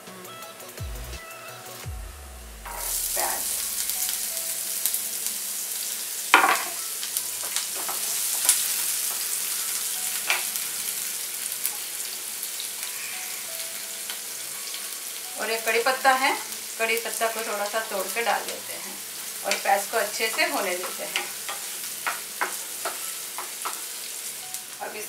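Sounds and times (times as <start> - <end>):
onions sizzling in hot oil: 2.6 - 25.0
spatula knocking on pan: 20.3 - 23.9.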